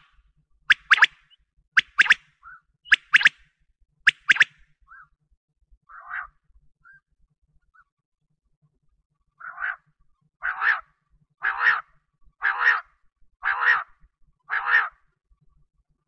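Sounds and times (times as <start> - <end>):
quail calling: 0.7 - 3.4, 4.1 - 5.0, 5.9 - 6.4, 9.4 - 15.0.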